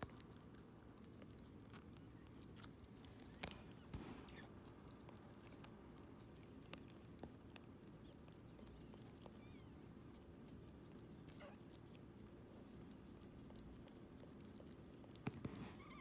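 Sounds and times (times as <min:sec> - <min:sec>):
low steady hum: 0:00.0 - 0:16.0
wet clicking and chewing: 0:00.0 - 0:16.0
puppy squeaking: 0:08.0 - 0:09.8, 0:11.2 - 0:11.6, 0:15.5 - 0:16.0.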